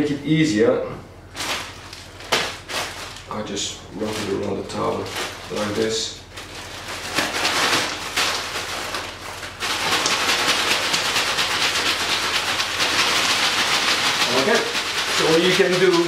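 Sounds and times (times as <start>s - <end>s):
ice cubes rattling in a bag: 4.0s - 16.0s.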